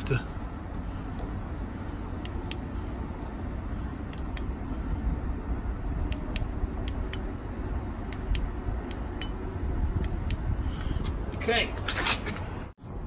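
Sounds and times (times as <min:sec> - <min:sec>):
low background rumble: 0:00.0 - 0:13.0.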